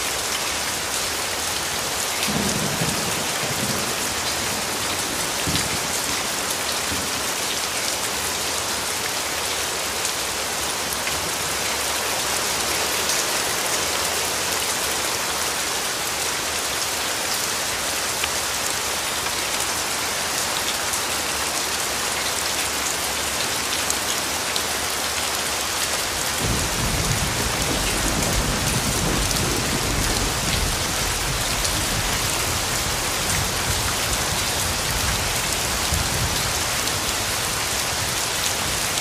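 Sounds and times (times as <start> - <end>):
heavy rain pouring: 0.0 - 39.0
low rumble of thunder: 2.3 - 6.2, 26.4 - 37.1.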